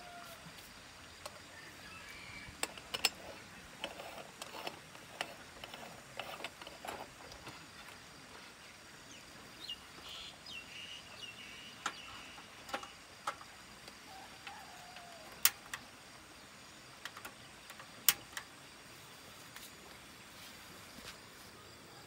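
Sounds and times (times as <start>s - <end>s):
birds chirping: 7.3s - 13.4s.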